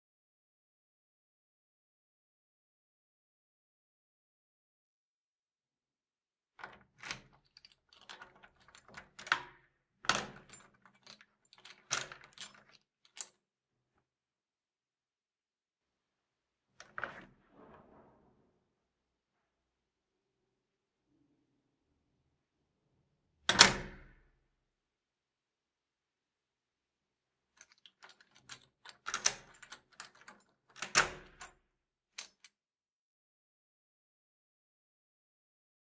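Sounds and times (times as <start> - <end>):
key rattling in a lock: 6.6 - 13.4, 27.6 - 31.6, 32.2 - 32.6
latch and handle clicks: 27.6 - 31.5.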